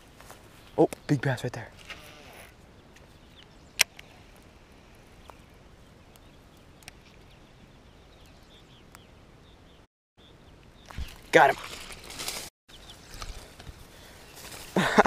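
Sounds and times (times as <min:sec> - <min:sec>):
quiet outdoor background: 0:00.0 - 0:15.0.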